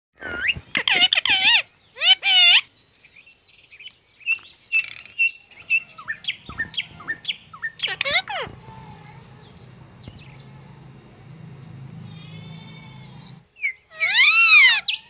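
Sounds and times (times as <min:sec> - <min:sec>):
parakeet squawking: 0:00.4 - 0:02.7, 0:05.6 - 0:09.6, 0:12.1 - 0:15.0
parakeet chirps: 0:04.6 - 0:09.5.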